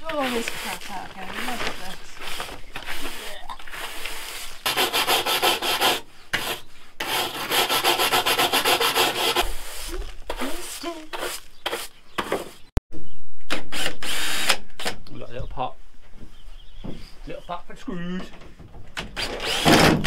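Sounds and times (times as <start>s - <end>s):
bristle brush scrubbing steel floor: 0.0s - 4.6s.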